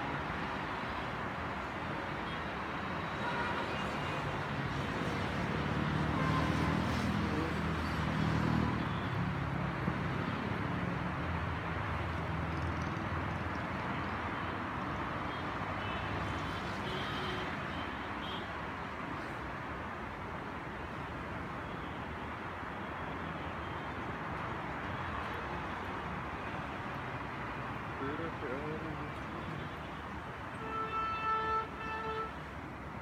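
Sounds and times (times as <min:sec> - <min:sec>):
highway traffic: 0:00.0 - 0:33.0.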